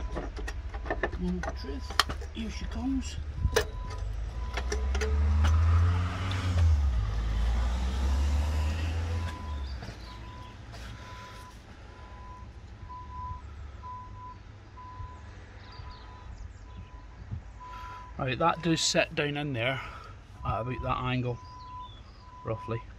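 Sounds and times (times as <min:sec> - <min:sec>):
deep vehicle rumble: 0:00.0 - 0:22.9
sharp metallic clicks: 0:03.5 - 0:06.7
reversing alarm beeping: 0:08.6 - 0:15.2, 0:20.4 - 0:22.8.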